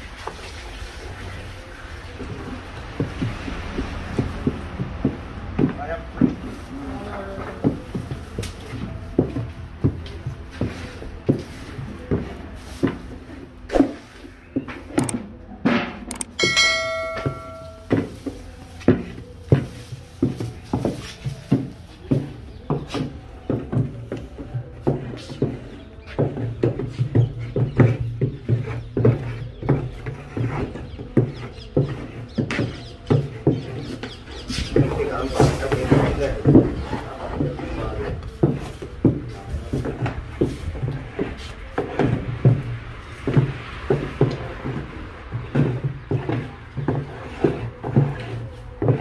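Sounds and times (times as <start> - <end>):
regular knocking strokes: 16.0 - 22.3.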